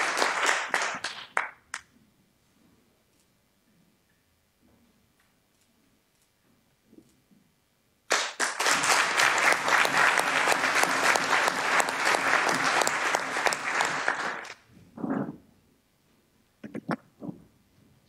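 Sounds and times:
audience applause: 0:00.0 - 0:01.8, 0:08.1 - 0:14.6.

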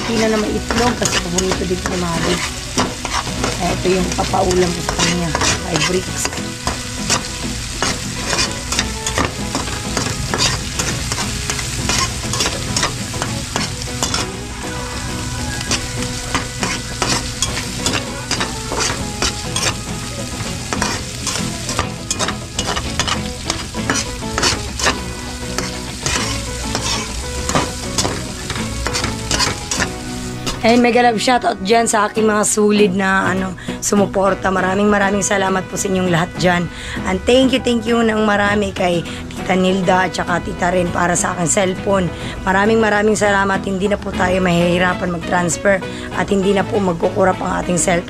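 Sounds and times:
utensil scraping a pan: 0:00.0 - 0:14.4, 0:15.6 - 0:30.8
food sizzling in a pan: 0:00.0 - 0:31.1.

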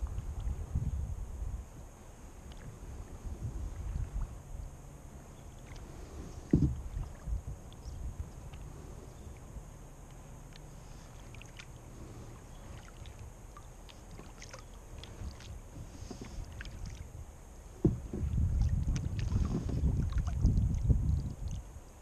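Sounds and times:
water lapping against hull: 0:00.0 - 0:22.0
sudden knock: 0:06.5 - 0:06.8.

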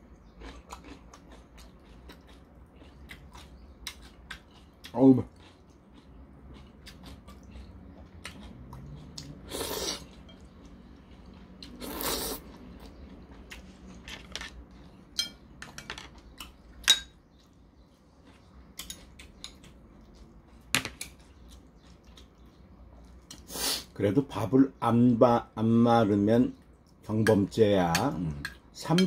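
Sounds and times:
chopsticks and spoon clinking bowl: 0:10.1 - 0:11.2, 0:14.0 - 0:17.2, 0:18.8 - 0:19.7, 0:27.1 - 0:29.0.

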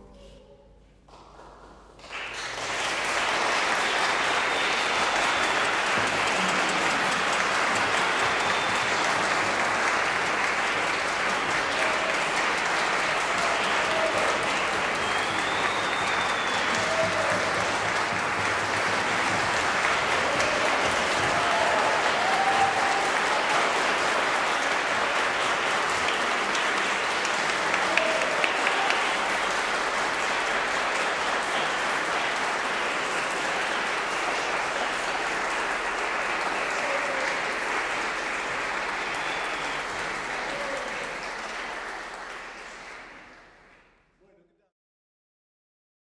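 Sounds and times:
audience applauding: 0:01.0 - 0:43.9.

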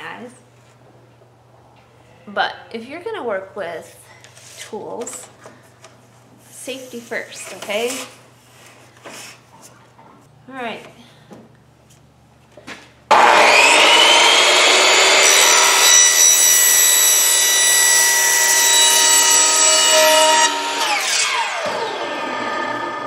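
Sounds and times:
miter saw cutting plastic pipe: 0:13.1 - 0:23.0.

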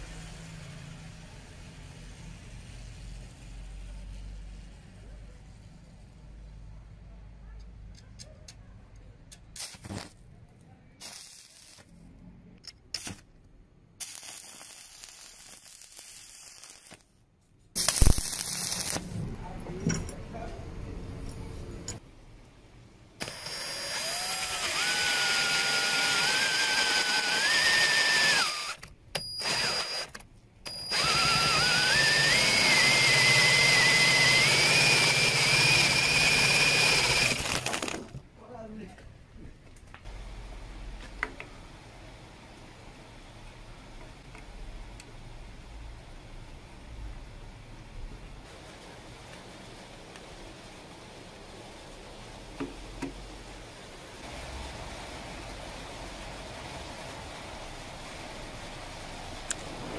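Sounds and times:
electric drill whining: 0:23.2 - 0:38.1.

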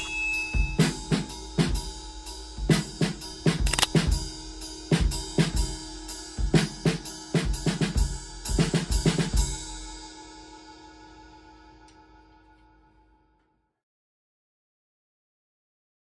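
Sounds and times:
drum kit hits: 0:00.0 - 0:05.8.

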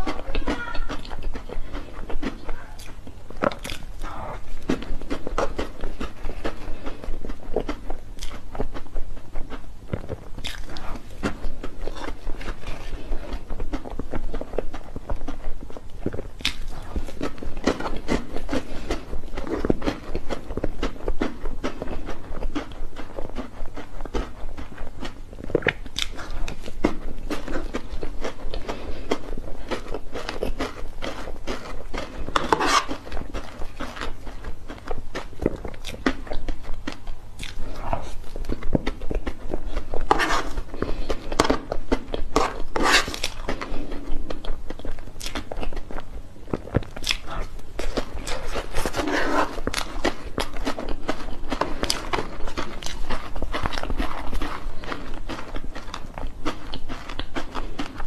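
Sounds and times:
chewing and wet mouth clicks: 0:00.0 - 0:58.0
metal spoon scooping cake: 0:32.0 - 0:34.1, 0:40.0 - 0:40.7, 0:42.2 - 0:43.6.

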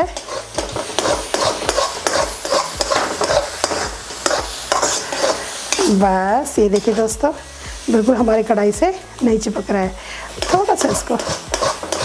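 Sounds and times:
spatula scraping metal pan: 0:00.0 - 0:07.7, 0:10.1 - 0:12.0
ghee sizzling: 0:00.0 - 0:12.0.

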